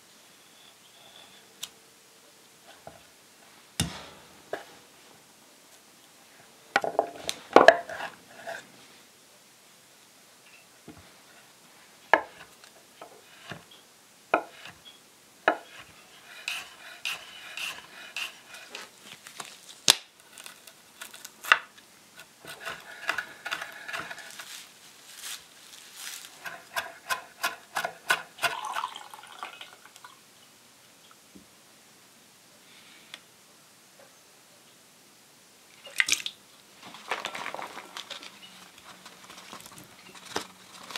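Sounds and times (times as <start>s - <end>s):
metal spoon scraping seeds: 15.6s - 19.4s, 22.2s - 24.7s.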